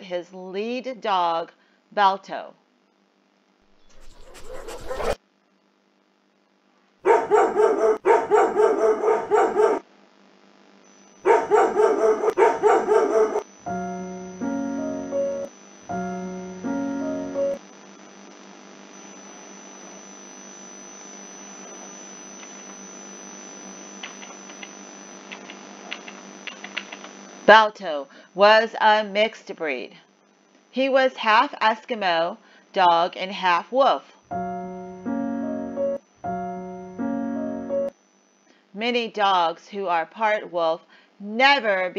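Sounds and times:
faint steady hum: 0.0s - 4.0s, 5.3s - 41.9s
dog barking: 4.3s - 5.2s, 7.0s - 9.8s, 11.3s - 13.4s
thin high tone: 12.6s - 17.6s, 34.3s - 37.9s.

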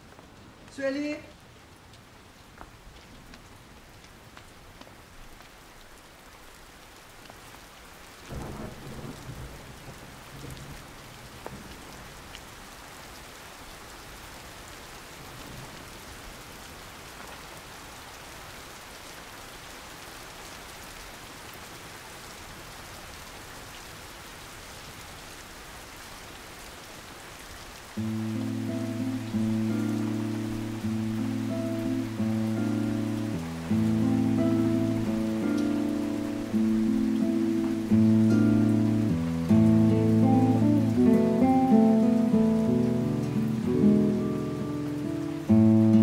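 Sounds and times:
steady rain falling: 0.0s - 46.0s
low rumble of thunder: 8.3s - 11.7s.

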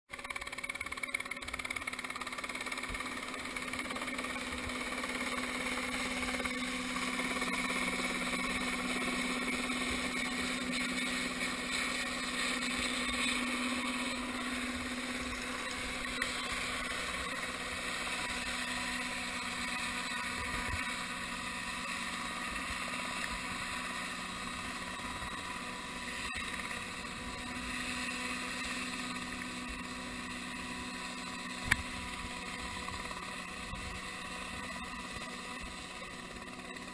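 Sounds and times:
helicopter engine and rotor drone: 0.1s - 36.9s
sharp click: 31.6s - 31.9s.

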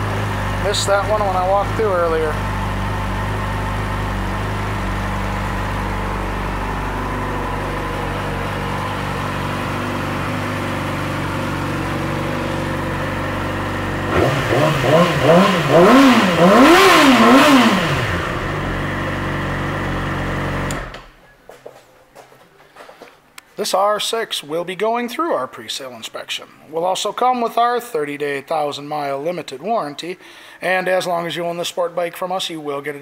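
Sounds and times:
motorcycle engine idling and revving: 0.0s - 21.2s.

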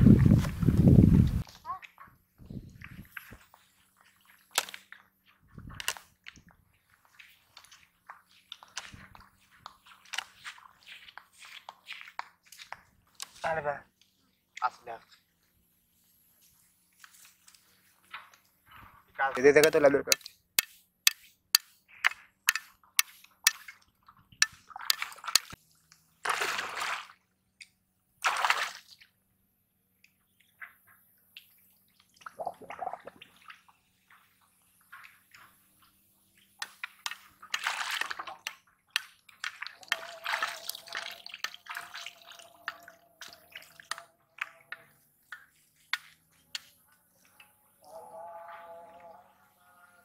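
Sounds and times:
water splashing: 22.6s - 25.6s, 26.2s - 27.2s, 28.2s - 29.1s, 31.4s - 35.6s, 36.6s - 46.4s.

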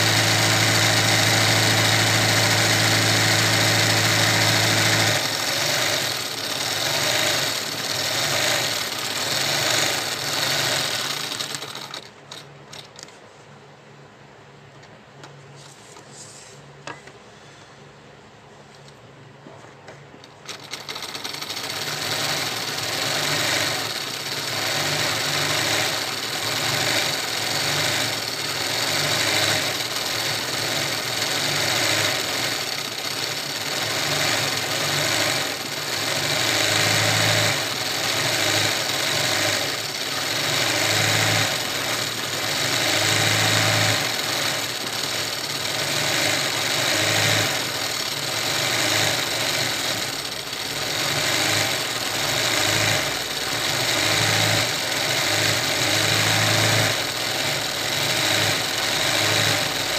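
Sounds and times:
sewing machine stitching: 0.0s - 13.1s, 20.2s - 59.9s.

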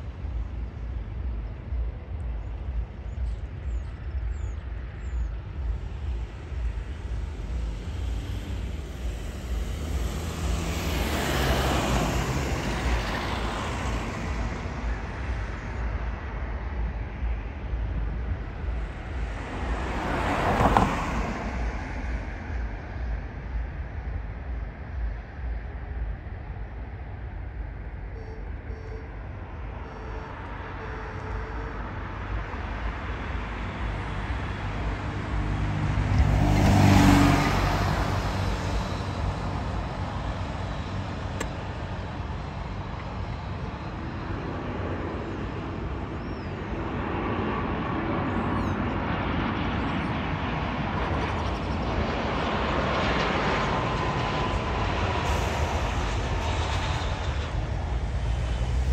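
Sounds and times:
airliner whine and rumble: 0.0s - 58.9s
steady outdoor rumble: 0.0s - 58.9s
vehicle passing close: 5.6s - 15.5s, 32.9s - 46.1s, 52.3s - 58.9s.

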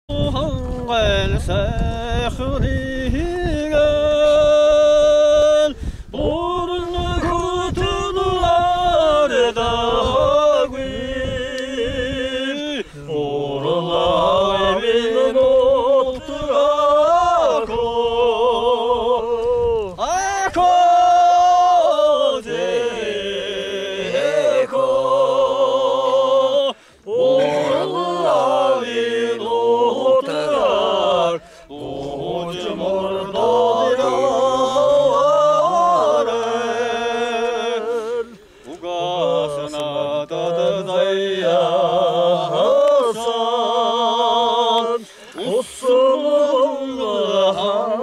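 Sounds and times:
man singing unaccompanied: 0.0s - 48.0s
man breathing in: 5.8s - 6.1s, 26.8s - 27.1s, 31.4s - 31.7s, 45.0s - 45.4s.

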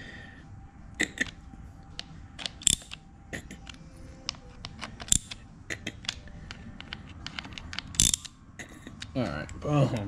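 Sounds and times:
socket ratchet clicking: 2.0s - 3.0s, 3.6s - 9.2s.

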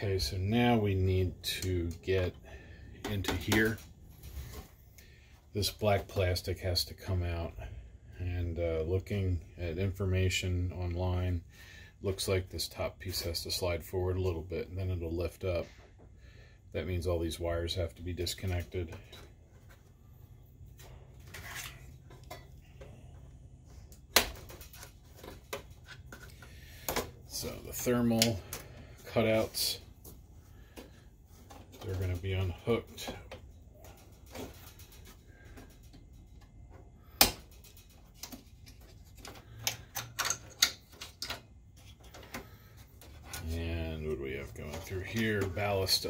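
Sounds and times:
wire connectors clicking: 27.8s - 28.6s.

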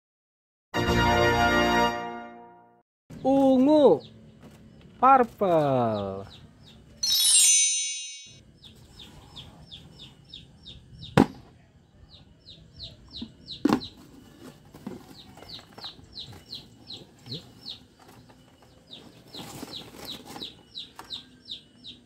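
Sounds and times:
bird chirping: 3.1s - 22.0s
shimmering chime: 7.0s - 8.4s.

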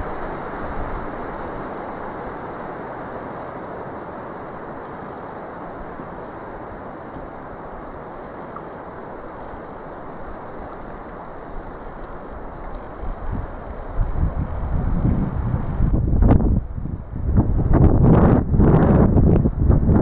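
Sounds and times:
wind buffeting microphone: 12.4s - 20.0s.

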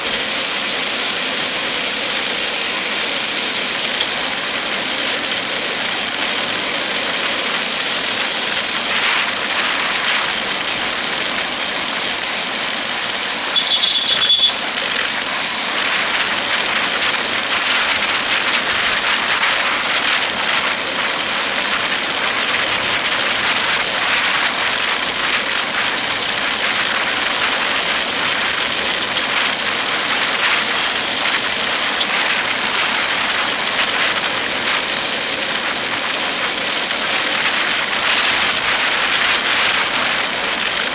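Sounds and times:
wind and tyre hiss: 0.0s - 40.9s.

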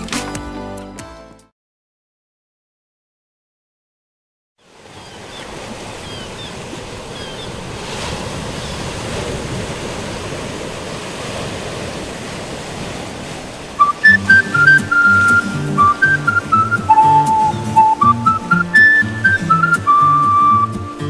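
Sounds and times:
surf washing onto rocky shore: 4.8s - 20.7s.

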